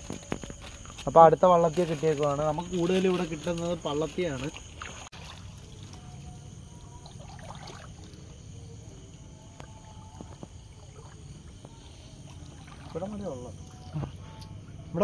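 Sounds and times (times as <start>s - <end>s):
low rumble and hiss: 5.1s - 15.0s.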